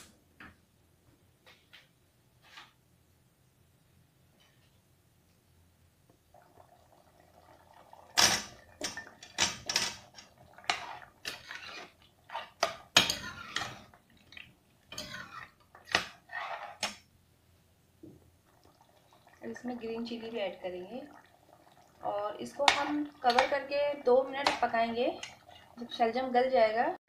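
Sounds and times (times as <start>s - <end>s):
ladle knocking and scraping pot: 8.2s - 14.0s, 14.9s - 17.0s, 22.5s - 25.7s.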